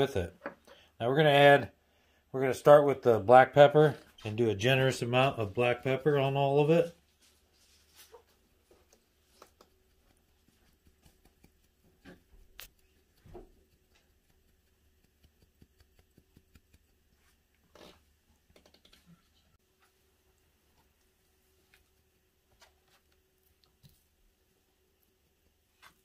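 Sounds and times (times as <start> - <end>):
pepper ticking on meat: 9.5 - 17.1.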